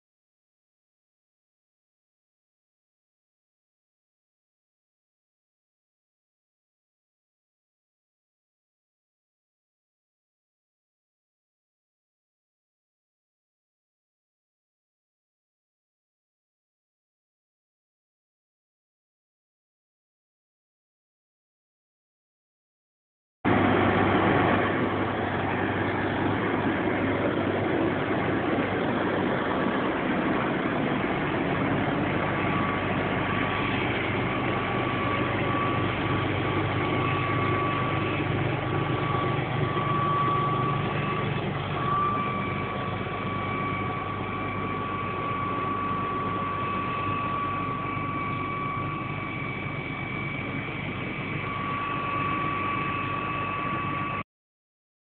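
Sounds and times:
steady high whine: 23.5s - 54.2s
tractor diesel engine running: 23.5s - 54.2s.

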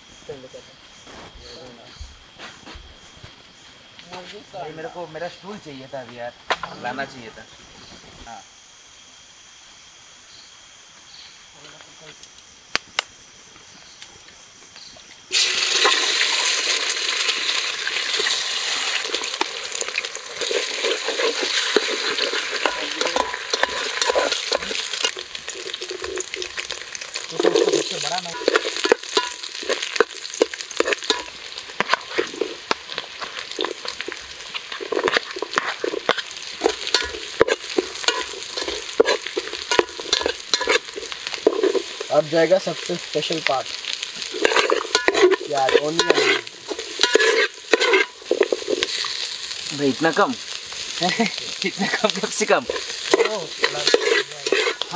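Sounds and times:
egg sizzling in hot oil: 15.3s - 54.9s
spatula scraping a pot: 20.4s - 42.1s, 44.2s - 49.3s, 51.9s - 54.9s.

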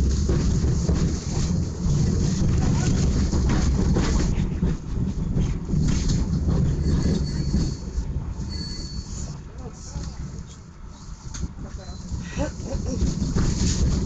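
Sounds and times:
tram wheels and motors rumbling: 0.0s - 14.0s
high-pitched wheel squeal: 6.8s - 9.4s.

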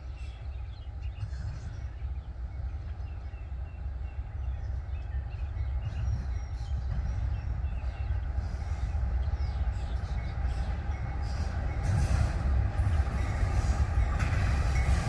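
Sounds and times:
birds chirping: 0.0s - 12.0s
diesel train rumbling: 0.0s - 15.0s.

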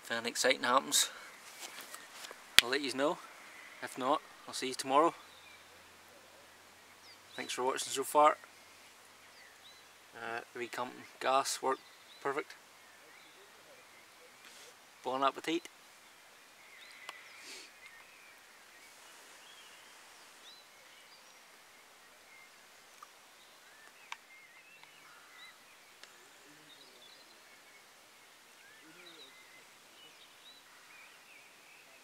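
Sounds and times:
faint hiss: 0.0s - 32.0s
faint bird chirps: 1.0s - 32.0s
light sharp clicks: 16.9s - 17.2s, 23.8s - 25.0s.

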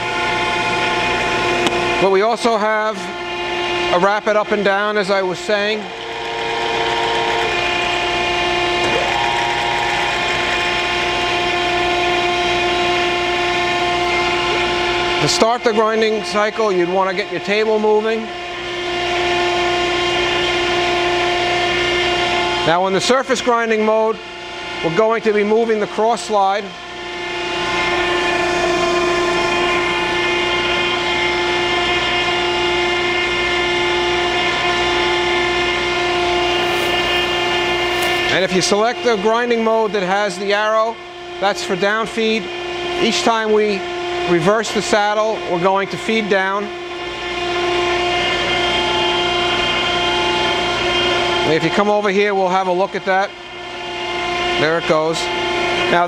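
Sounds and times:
higher tone of machine feed: 0.0s - 23.4s, 24.0s - 43.0s
grinding machine motor hum: 0.0s - 56.0s.

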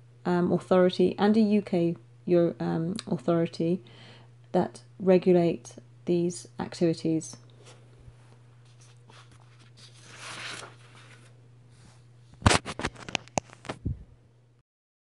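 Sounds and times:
low electrical hum: 0.0s - 14.6s.

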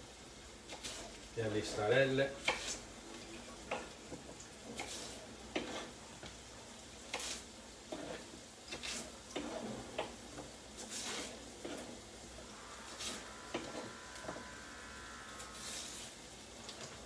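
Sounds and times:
knife chopping on cutting board: 2.4s - 2.8s.

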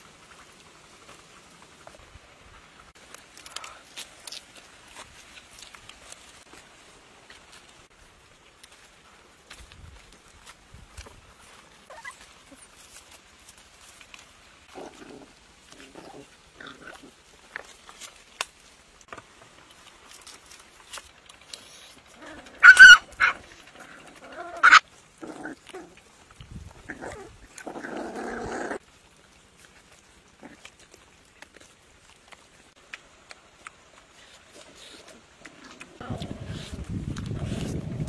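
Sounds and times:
puppies chewing and tearing: 0.0s - 38.0s
puppy squeals: 11.9s - 12.7s, 22.6s - 23.4s, 24.6s - 24.8s
puppy growl: 14.7s - 17.2s, 22.1s - 26.2s, 26.8s - 28.8s, 30.4s - 31.0s, 34.4s - 38.0s.

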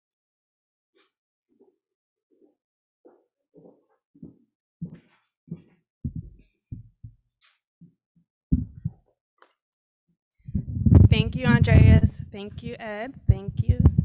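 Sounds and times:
thumps and knocks on lectern: 3.6s - 7.2s.

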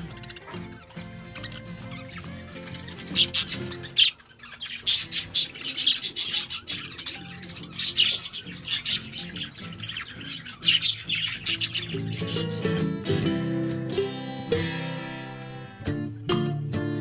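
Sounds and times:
background music: 0.0s - 4.2s, 4.8s - 17.0s
budgerigars chattering: 0.0s - 13.2s.

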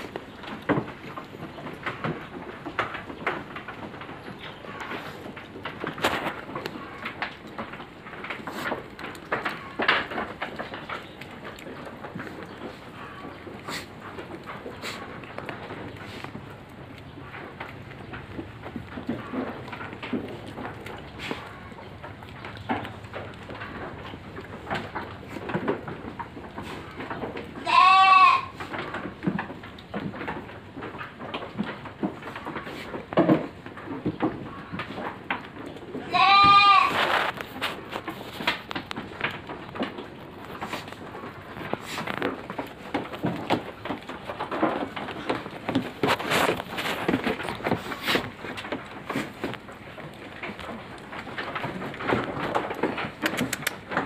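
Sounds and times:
goats chewing and rustling: 0.0s - 54.0s
goat bleating: 27.6s - 28.6s, 36.0s - 37.0s.

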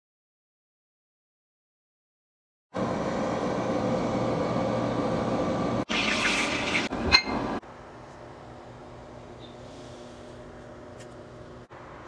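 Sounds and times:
air fryer fan humming: 2.7s - 12.0s.

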